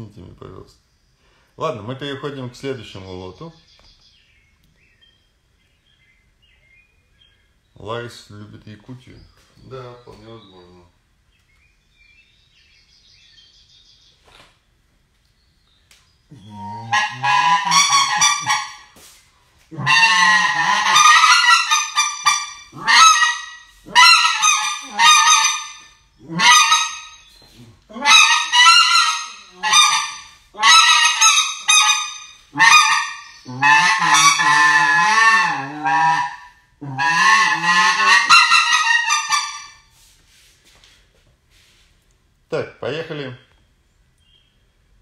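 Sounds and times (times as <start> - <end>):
duck call quacking: 16.3 - 19.0, 19.7 - 39.9.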